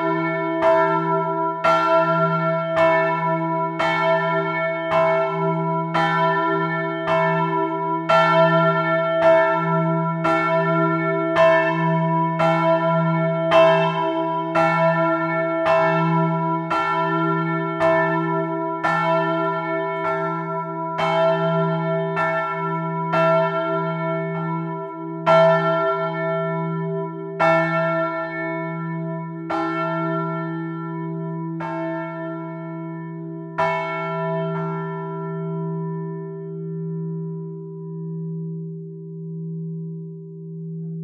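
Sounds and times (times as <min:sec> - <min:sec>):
church bells ringing: 0:00.0 - 0:41.0
low bell hum: 0:33.0 - 0:41.0.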